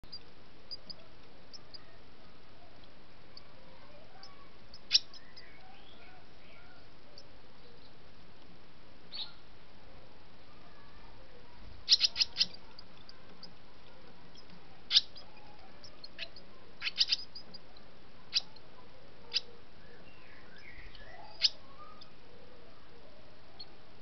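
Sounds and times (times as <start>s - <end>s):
swallows chirping: 4.2s - 8.0s, 11.8s - 17.7s, 19.2s - 22.2s.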